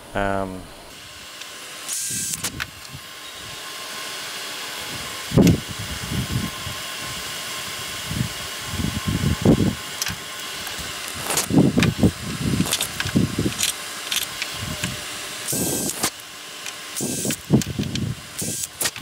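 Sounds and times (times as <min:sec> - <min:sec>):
shop fan whirring: 0:00.0 - 0:19.0
tools knocking and clicking: 0:12.6 - 0:14.9.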